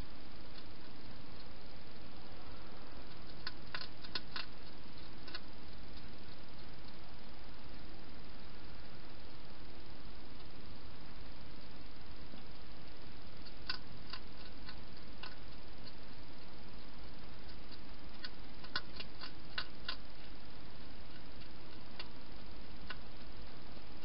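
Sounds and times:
microphone hiss: 0:00.0 - 0:24.0
hedgehog eating clicks: 0:00.4 - 0:01.8, 0:03.0 - 0:07.3, 0:11.4 - 0:24.0.

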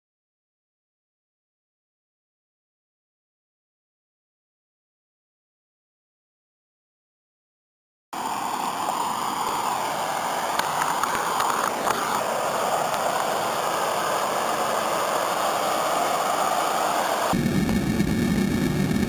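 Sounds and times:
water rushing down waterfall: 0:08.2 - 0:17.4.

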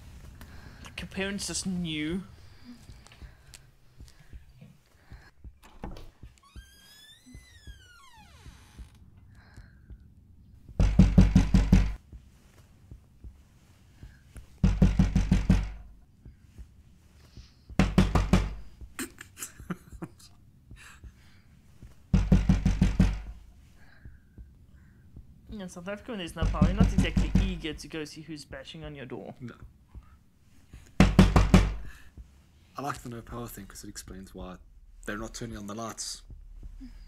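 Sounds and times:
banging on a door: 0:10.7 - 0:12.0, 0:14.6 - 0:15.9, 0:17.8 - 0:18.6, 0:22.1 - 0:23.4, 0:26.4 - 0:27.7, 0:31.0 - 0:31.9.

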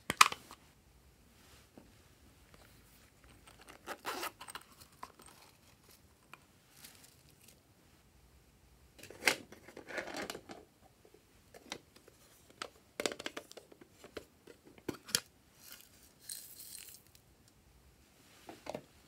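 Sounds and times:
crinkly rustles: 0:02.5 - 0:07.6
sequins pattering from cup: 0:15.6 - 0:17.2.

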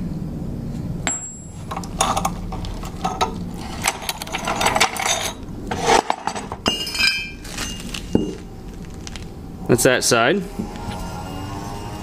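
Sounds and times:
steel pipes clicking and rattling: 0:01.1 - 0:08.4
metal vise knocking and sliding: 0:01.7 - 0:07.3.

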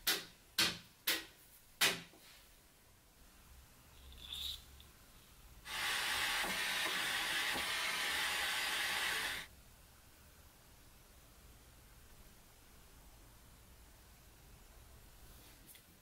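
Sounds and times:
gas torch hissing: 0:05.6 - 0:09.5.

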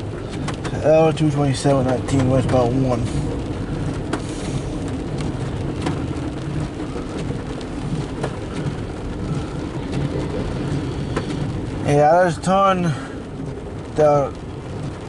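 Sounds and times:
car cabin low rumble: 0:00.0 - 0:15.0
rain hitting windshield: 0:00.0 - 0:15.0
windshield wipers running: 0:00.0 - 0:15.0
freight train rolling: 0:08.2 - 0:11.5.

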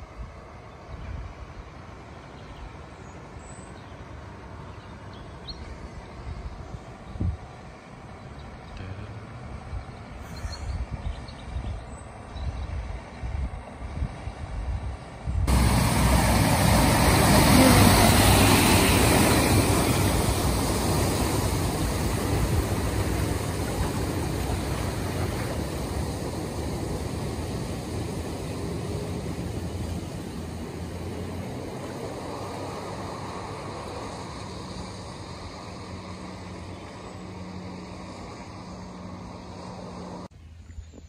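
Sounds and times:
low engine rumble: 0:00.0 - 0:41.0
water rushing and splashing: 0:15.5 - 0:40.3.

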